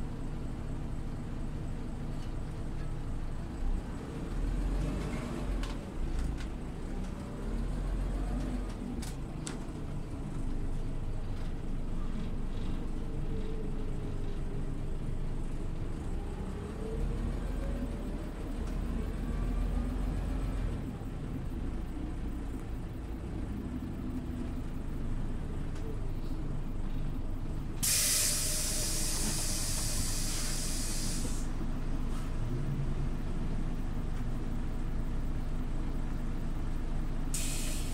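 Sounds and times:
bus engine rumbling: 0.0s - 37.9s
compressed air hiss: 27.8s - 31.5s, 37.3s - 37.9s.

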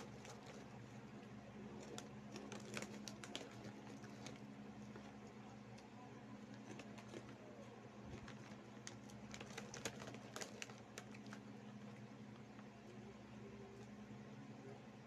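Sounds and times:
snack bag crinkling: 0.0s - 5.8s, 6.4s - 12.7s
steady low hum: 0.0s - 15.0s.

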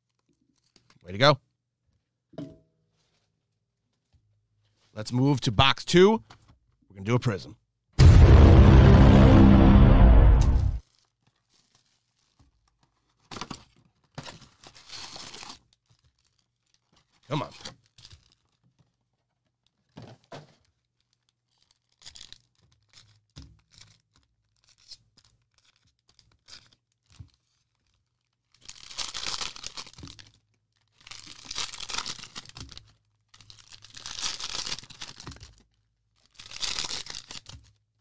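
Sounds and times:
plastic wrapper tearing: 10.8s - 13.6s, 14.4s - 18.9s, 20.6s - 38.0s
plastic wrappers rustling: 10.8s - 19.1s, 19.7s - 38.0s.

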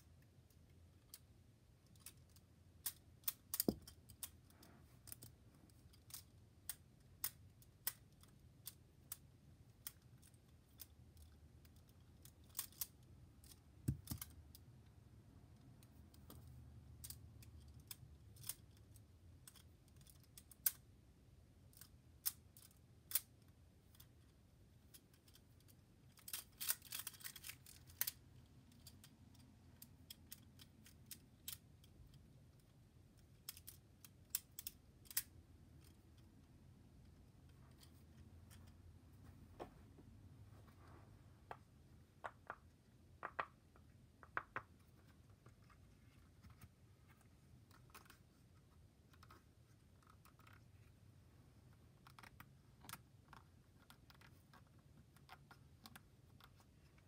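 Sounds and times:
rings clicking together: 24.8s - 36.3s.

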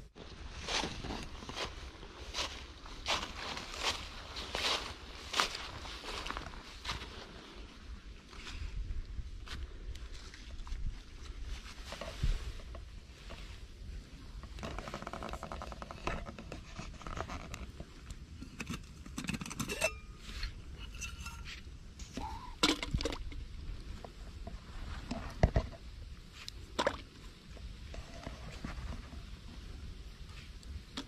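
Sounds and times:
cookware clinks and scrapes: 18.5s - 21.6s.

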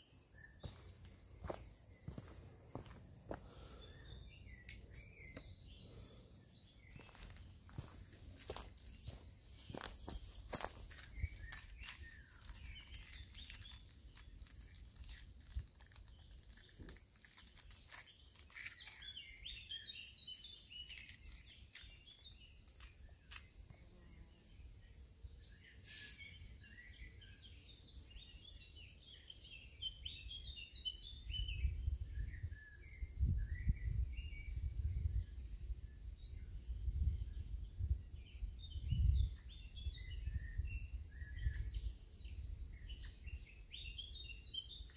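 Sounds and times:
high insect trill: 0.0s - 44.9s
small sticks clicking: 11.5s - 19.1s
bird chirps: 17.6s - 22.6s.

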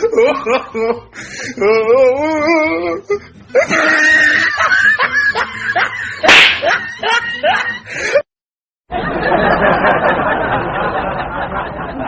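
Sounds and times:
yelps and laughs: 3.6s - 8.2s
sharp smack-like crack: 6.2s - 6.7s.

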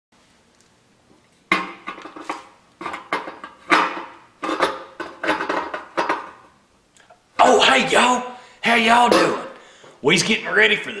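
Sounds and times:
metal dish clanking and rattling: 1.5s - 6.5s.

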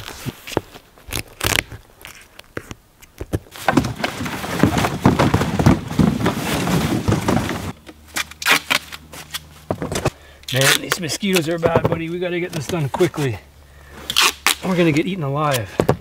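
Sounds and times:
cardboard boxes clattering: 3.5s - 7.8s
boxes scraping over leaves: 3.5s - 15.2s.

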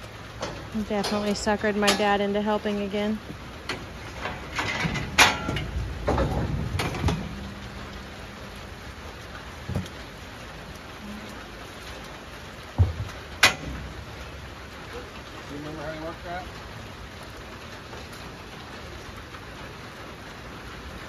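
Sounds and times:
rain falling: 0.0s - 21.0s
sharp knocks: 12.7s - 13.9s.

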